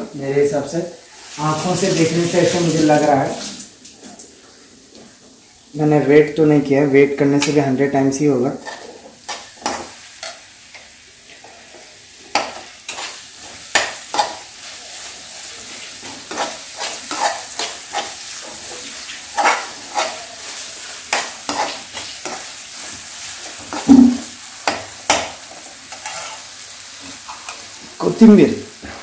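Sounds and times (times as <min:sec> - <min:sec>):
sizzling: 0:00.0 - 0:29.0
metal spoon scraping a pan: 0:08.6 - 0:27.7
loud knock: 0:23.9 - 0:24.2.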